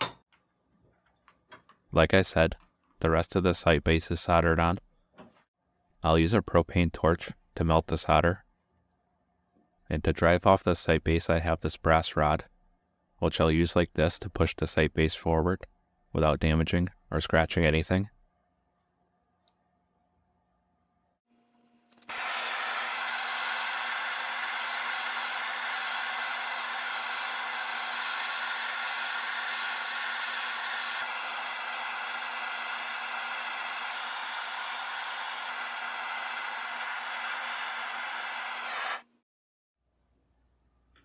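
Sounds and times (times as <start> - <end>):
propane torch hissing: 22.1 - 39.0.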